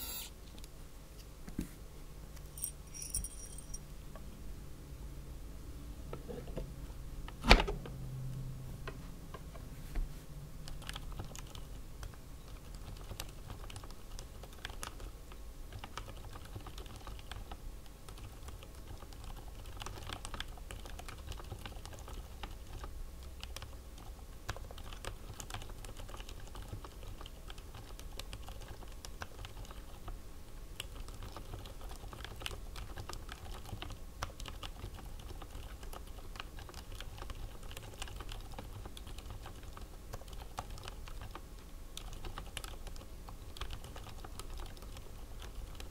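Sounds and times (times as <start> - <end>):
mechanical keyboard typing: 10.6 - 30.2, 30.8 - 45.9.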